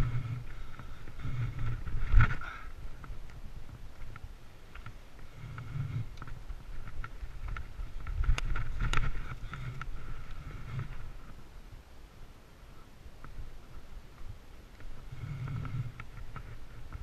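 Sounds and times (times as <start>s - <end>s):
bike rattling clicks: 0.0s - 11.4s
bike tyres rumbling on dirt: 0.0s - 12.4s, 13.0s - 17.0s
wind on microphone: 0.0s - 17.0s.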